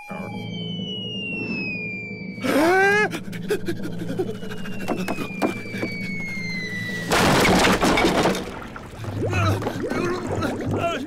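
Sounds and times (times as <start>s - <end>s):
cartoon falling whistle: 0.0s - 3.1s
loud crash: 7.1s - 8.7s.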